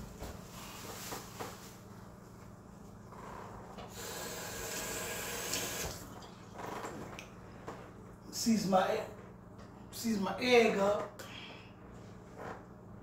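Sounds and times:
handling noise rubbing and rustling: 0:00.0 - 0:03.1.

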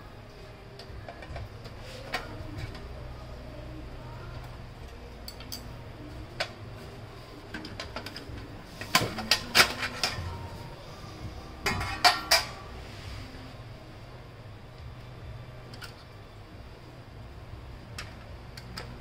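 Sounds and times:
metallic clicks and clanks: 0:05.2 - 0:05.8.

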